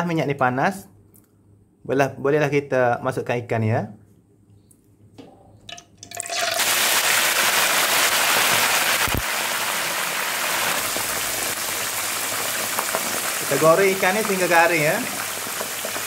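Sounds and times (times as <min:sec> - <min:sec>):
fish sizzling in hot oil: 0:06.2 - 0:16.0.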